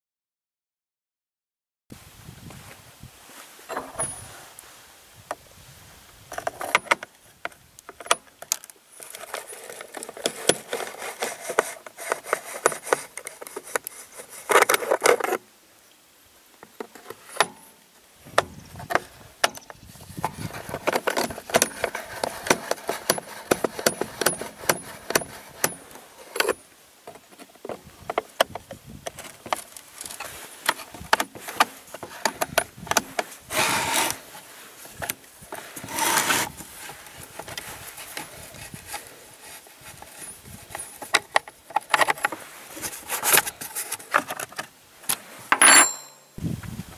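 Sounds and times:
metal clicks and rattles: 20.6 - 26.6
scraping: 29.2 - 46.4.

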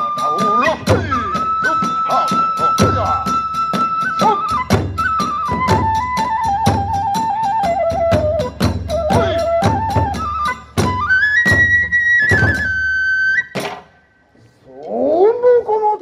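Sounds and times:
bamboo flute melody: 0.0 - 16.0
drum strikes: 0.2 - 7.0, 7.9 - 12.8, 13.5 - 14.0.

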